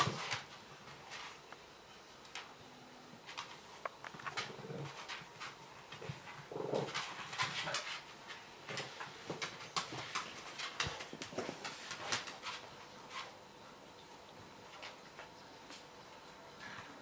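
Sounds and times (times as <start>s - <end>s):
dog claws scrabbling on tiles: 3.2s - 13.4s.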